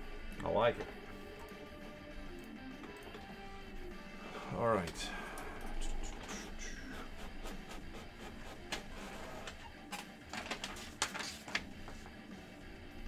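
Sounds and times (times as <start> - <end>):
cards and packaging clicking: 9.8 - 11.8.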